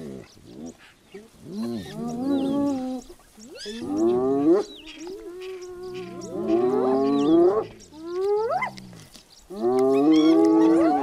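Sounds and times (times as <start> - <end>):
hyenas whining calls: 1.5 - 11.0.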